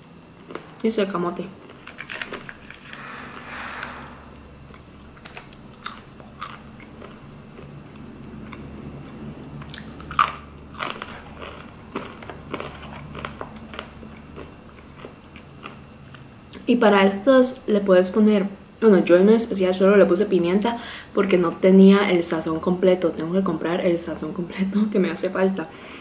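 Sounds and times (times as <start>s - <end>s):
crunching fries: 5.8s - 16.6s.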